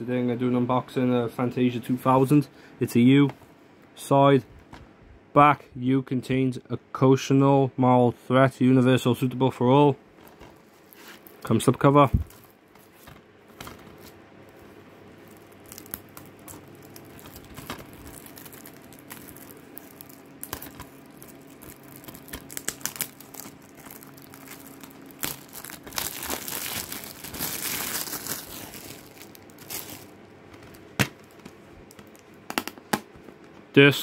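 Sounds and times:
plastic shrink-wrap crinkling and tearing: 10.2s - 32.8s.

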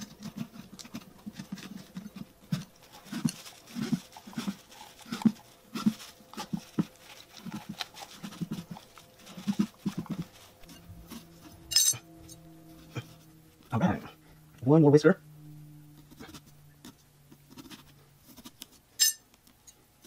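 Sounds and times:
dog chewing wetly: 0.1s - 11.2s.

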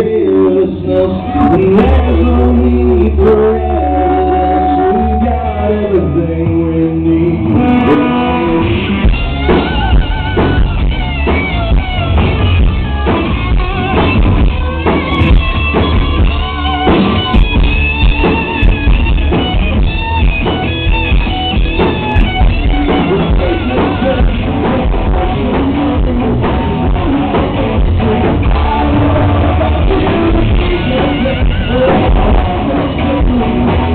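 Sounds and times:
man singing: 0.0s - 11.3s, 22.1s - 33.9s
electric guitar: 0.0s - 33.9s
drum kit: 6.5s - 33.9s.

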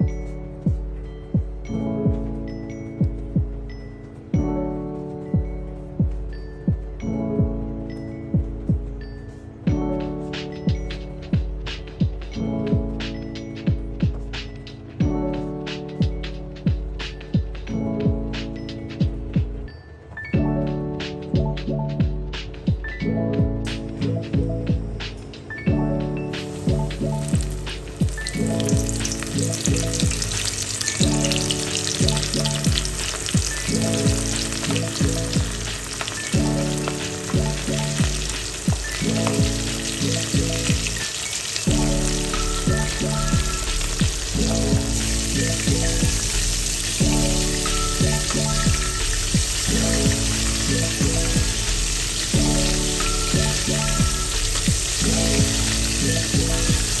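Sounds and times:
background music with beat: 0.0s - 57.0s
chicken deep-frying in oil: 26.3s - 57.0s.

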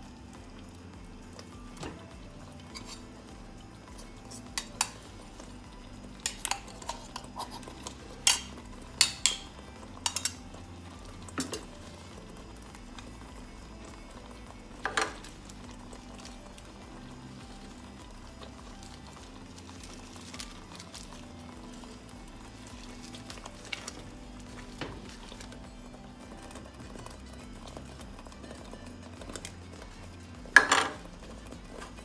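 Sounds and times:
spatula stirring and knocking in pot: 0.0s - 32.0s
steel container clinking: 6.2s - 13.2s, 14.8s - 32.0s.

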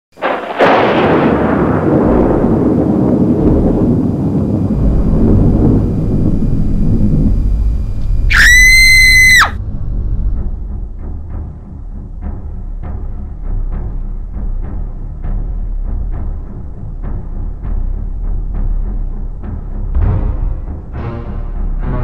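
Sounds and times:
thunder rumble: 0.2s - 12.2s
shrill scream: 8.3s - 9.6s.

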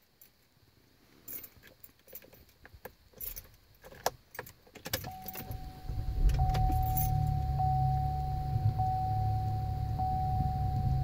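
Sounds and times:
keys jangling in ignition: 1.3s - 7.7s
car engine cranking and starting: 3.2s - 11.0s
steady whine: 4.9s - 11.0s.

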